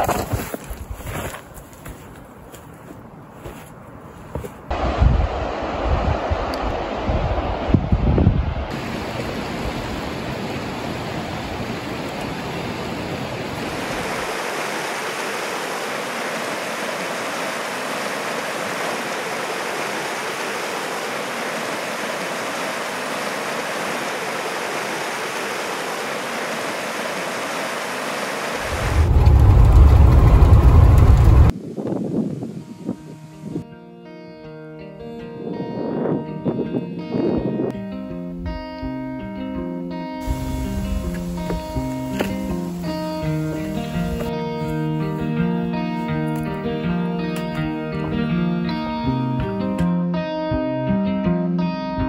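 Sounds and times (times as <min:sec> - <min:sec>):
loud low rumble: 0:04.7 - 0:08.7, 0:28.6 - 0:31.5
river water rushing: 0:08.7 - 0:31.5, 0:40.2 - 0:45.1.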